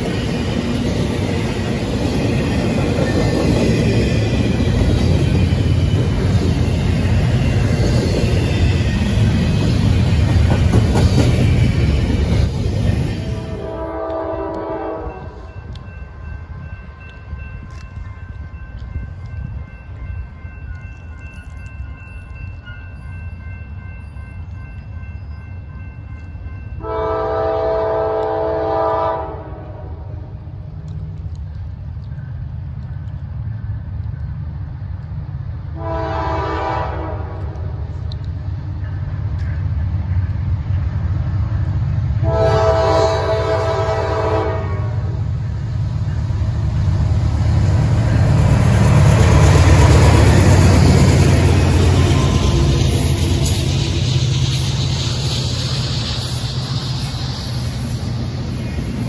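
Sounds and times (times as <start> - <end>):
locomotive air horn blasts: 13.2 - 15.4, 26.8 - 30.0, 35.8 - 37.8, 42.2 - 45.2.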